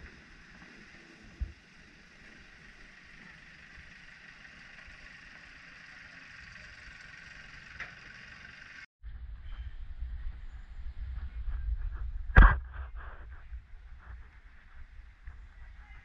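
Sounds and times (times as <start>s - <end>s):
wind rumbling on microphone: 0.0s - 4.2s, 9.0s - 16.0s
small diesel locomotive running: 0.0s - 8.9s.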